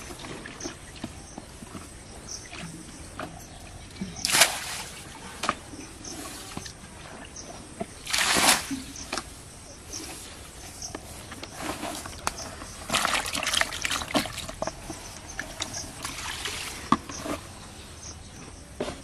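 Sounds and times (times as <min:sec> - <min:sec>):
water splashing from a basin: 0:04.2 - 0:05.6, 0:07.9 - 0:09.3, 0:11.9 - 0:17.1.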